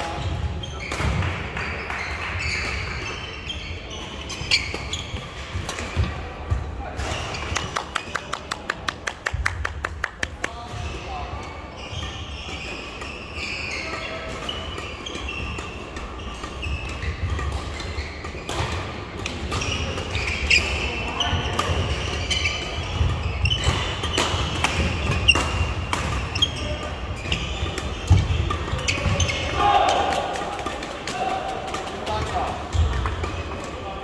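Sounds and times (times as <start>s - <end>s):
shoes squeaking on court: 0.0s - 8.4s, 10.7s - 30.1s
racket striking shuttlecock: 23.0s - 26.5s.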